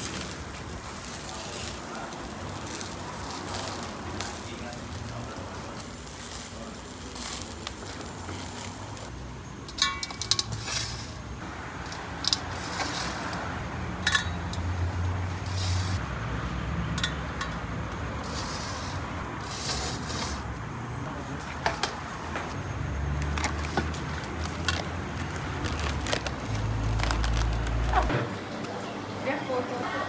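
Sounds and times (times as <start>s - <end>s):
metal skewers clinking: 9.6s - 11.2s, 11.8s - 13.4s, 14.0s - 16.0s, 16.9s - 20.4s.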